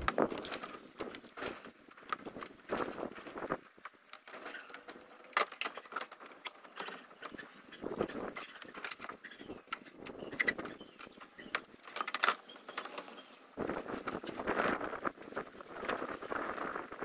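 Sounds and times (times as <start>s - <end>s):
tools handling parts clicking: 8.6s - 13.1s.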